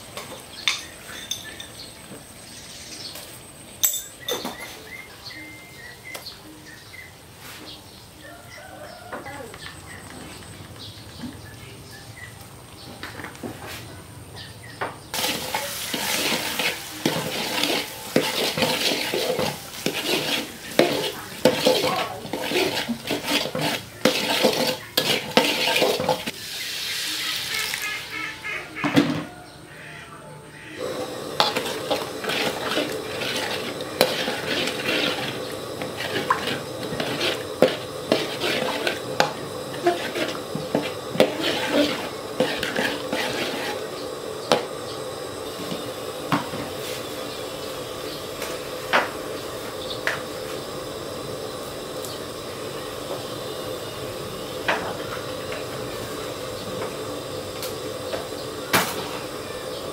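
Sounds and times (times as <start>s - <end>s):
hiss of liquid in a wok: 15.1s - 28.2s, 30.8s - 59.9s
metal spatula scraping a wok: 15.2s - 27.1s, 30.8s - 44.8s.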